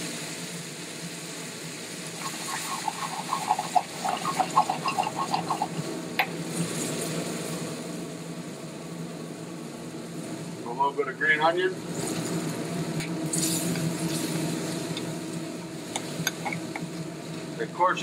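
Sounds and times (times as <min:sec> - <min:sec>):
kitchen hum: 0:01.9 - 0:07.7, 0:11.6 - 0:18.0
cream bubbling and popping in a pan: 0:02.0 - 0:06.3.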